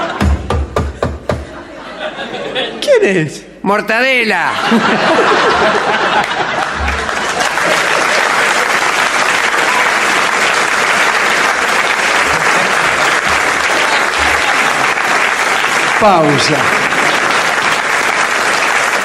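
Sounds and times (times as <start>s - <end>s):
audience applauding: 5.0s - 19.0s.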